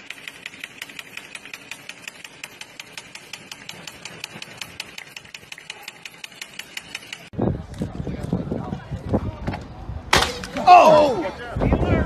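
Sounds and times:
rapid mechanical clicking: 0.0 - 7.4.

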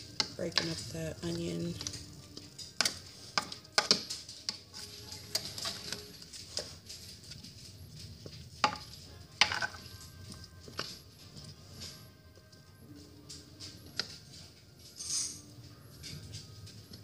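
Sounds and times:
utensil clinking and scraping pan: 0.0 - 12.0.

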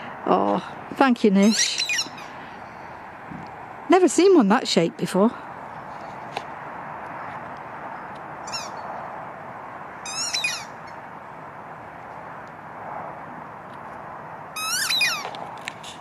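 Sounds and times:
dog toy squeaking: 1.4 - 2.7, 8.4 - 8.9, 10.0 - 11.0, 14.6 - 15.4.

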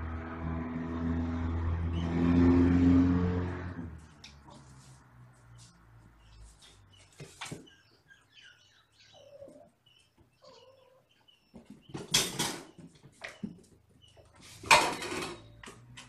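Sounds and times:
kittens scuffling and bumping: 4.2 - 7.8.

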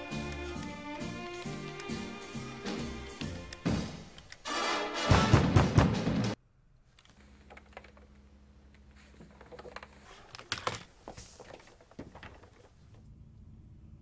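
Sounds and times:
laptop keyboard typing: 0.0 - 4.5
faint low hum: 12.2 - 14.0.

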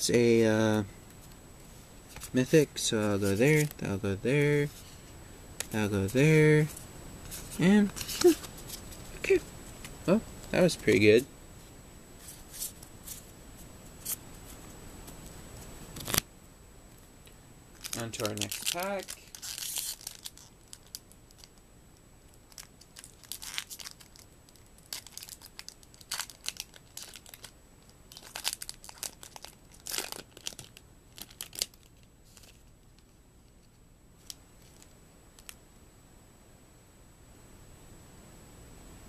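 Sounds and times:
wrapper tearing and crinkling: 16.0 - 16.2, 17.8 - 21.6, 22.5 - 27.5, 28.1 - 32.6.

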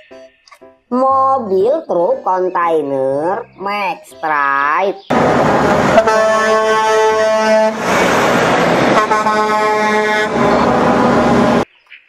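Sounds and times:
truck engine and road noise: 0.0 - 11.8
truck air horn blasts: 5.1 - 11.6.

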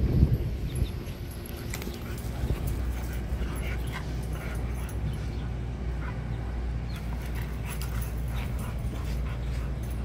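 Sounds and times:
steady low rumble: 0.0 - 10.0
dogs yelping while playing: 1.2 - 10.0.

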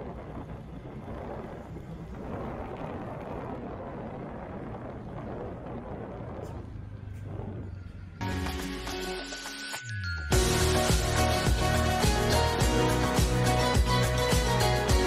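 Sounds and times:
wind rumbling on microphone: 0.0 - 8.2
vehicle engine hum: 0.0 - 9.2.

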